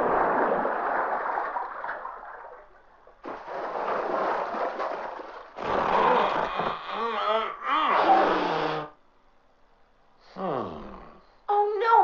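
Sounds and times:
cartoon water splashing rush: 3.2 - 6.4.

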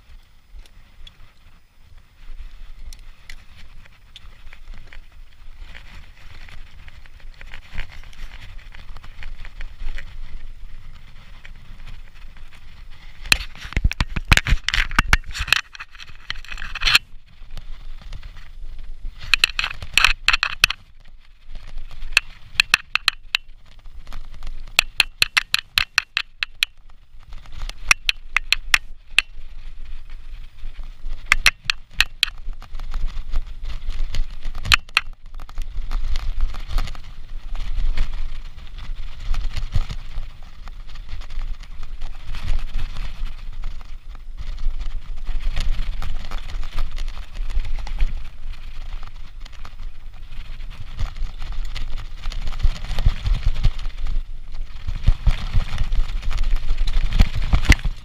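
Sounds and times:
bike rattling and knocking: 3.5 - 58.0
bike freewheel clicking: 21.5 - 26.9, 27.6 - 29.9, 30.7 - 33.2.

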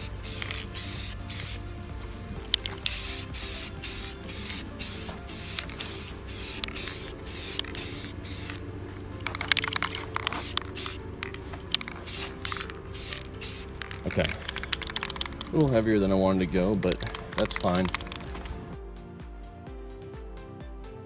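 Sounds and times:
aerosol spray can hissing: 0.0 - 1.6, 2.4 - 15.6, 16.8 - 18.6
background music: 0.0 - 21.0.

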